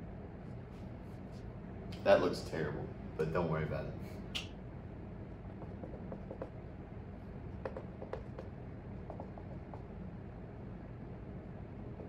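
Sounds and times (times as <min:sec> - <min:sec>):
low room hum: 0:00.0 - 0:12.0
marker writing on whiteboard: 0:05.6 - 0:06.6, 0:07.5 - 0:09.9.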